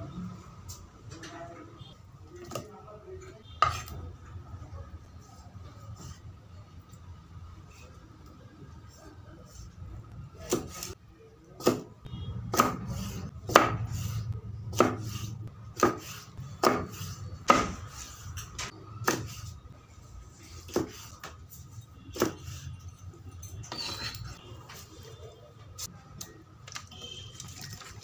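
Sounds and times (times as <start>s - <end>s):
knife chopping fish on wood: 13.5s - 14.0s, 14.7s - 15.2s, 15.8s - 17.9s, 19.0s - 19.4s, 20.7s - 21.0s.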